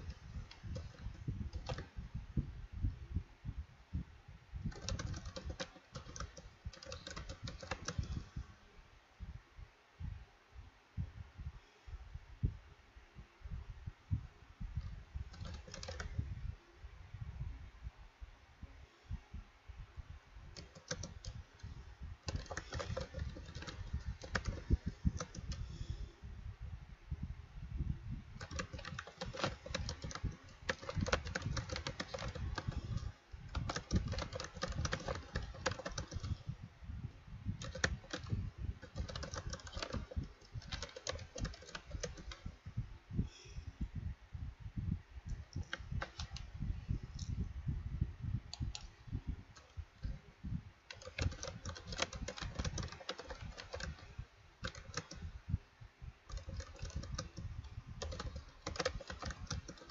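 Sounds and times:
keyboard typing: 0.0s - 1.9s, 4.7s - 8.4s, 15.3s - 16.2s, 20.5s - 25.8s, 28.4s - 36.4s, 37.6s - 42.4s, 45.5s - 46.5s, 50.9s - 55.3s, 56.3s - 59.9s.

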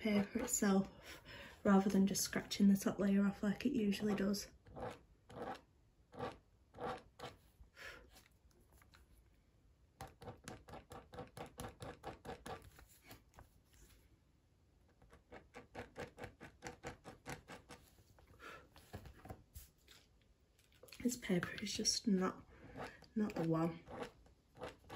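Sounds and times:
blade scratching paper: 4.7s - 7.4s, 22.6s - 24.9s.

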